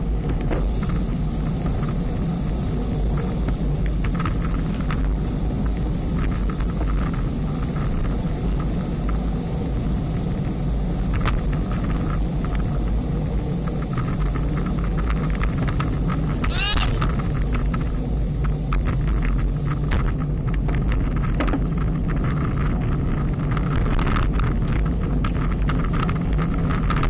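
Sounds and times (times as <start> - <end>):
wind buffeting and road noise: 0.0 - 27.0.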